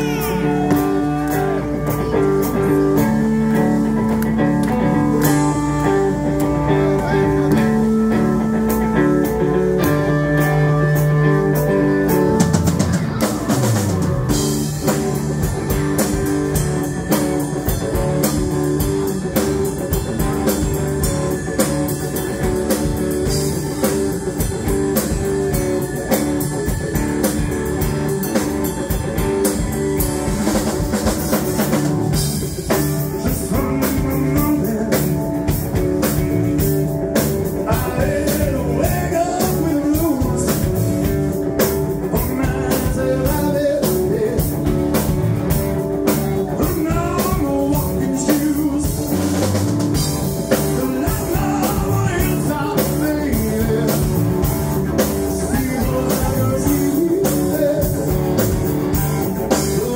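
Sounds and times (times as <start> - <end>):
man singing: 0.0 - 4.0, 32.4 - 59.9
live rock band playing: 0.0 - 59.9.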